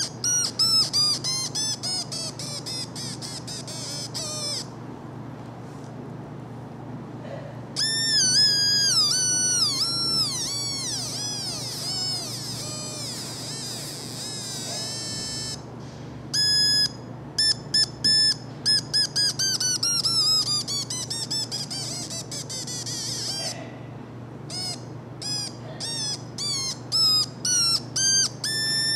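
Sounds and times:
buzzy electronic beeps: 0:00.0 - 0:04.7, 0:07.8 - 0:15.6, 0:16.4 - 0:23.5, 0:26.0 - 0:28.9.

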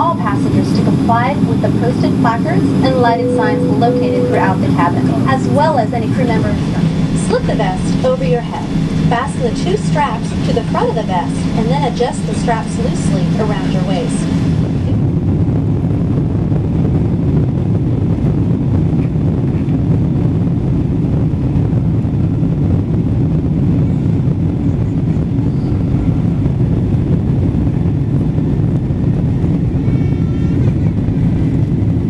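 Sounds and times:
faint high whine: 0:00.0 - 0:16.2, 0:22.0 - 0:28.6
airplane cabin rumble taxiing: 0:00.0 - 0:32.0.

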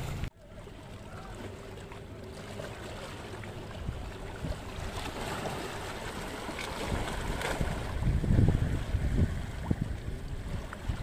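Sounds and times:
wind on microphone: 0:03.7 - 0:05.6, 0:06.6 - 0:11.0
sea water splashing on rocks: 0:04.4 - 0:09.8.

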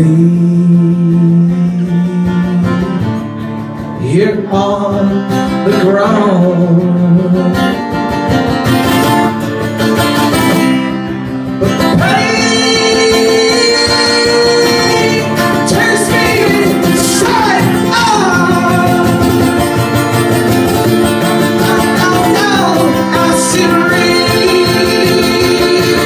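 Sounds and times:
man singing long notes: 0:00.0 - 0:03.2, 0:11.8 - 0:19.8, 0:21.5 - 0:26.0
acoustic guitar strumming: 0:00.0 - 0:26.0.

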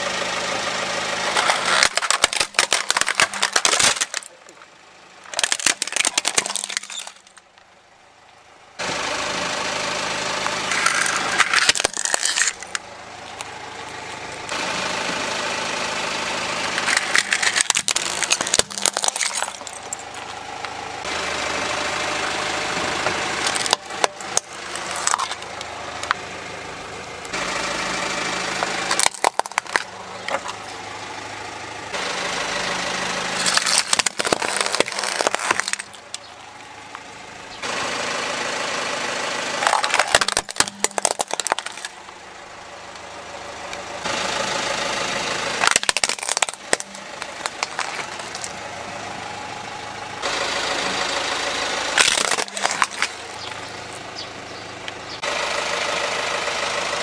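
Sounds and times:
car engine running: 0:00.0 - 0:57.0
tyres rolling over concrete: 0:01.2 - 0:07.7, 0:10.4 - 0:15.1, 0:16.6 - 0:21.1, 0:22.7 - 0:26.4, 0:28.5 - 0:31.7, 0:33.2 - 0:37.2, 0:39.4 - 0:42.2, 0:45.6 - 0:49.0, 0:51.9 - 0:54.9
plastic cracking and snapping: 0:01.3 - 0:04.6, 0:05.3 - 0:07.6, 0:10.8 - 0:13.5, 0:16.8 - 0:20.3, 0:23.4 - 0:26.2, 0:28.9 - 0:30.6, 0:33.4 - 0:36.3, 0:39.6 - 0:42.0, 0:45.6 - 0:48.5, 0:52.0 - 0:53.2.

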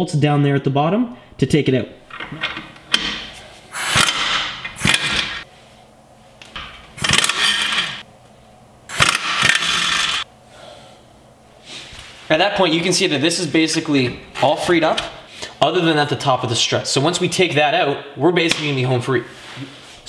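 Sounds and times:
air impact wrench bursts: 0:03.7 - 0:05.5, 0:07.0 - 0:08.0, 0:08.9 - 0:10.3.

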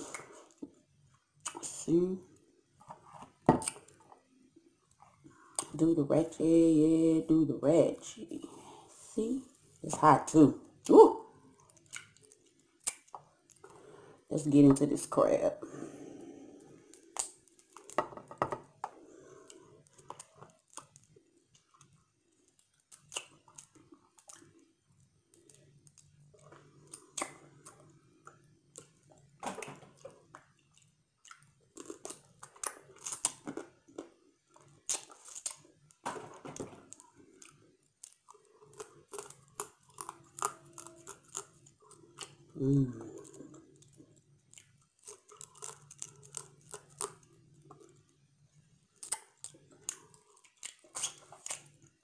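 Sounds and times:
chewing and lip-smacking: 0:11.5 - 0:13.7, 0:29.9 - 0:35.7, 0:43.2 - 0:48.0, 0:48.9 - 0:52.0
crab shell cracking: 0:19.5 - 0:24.5, 0:36.6 - 0:42.4, 0:43.7 - 0:48.0, 0:48.9 - 0:52.0.

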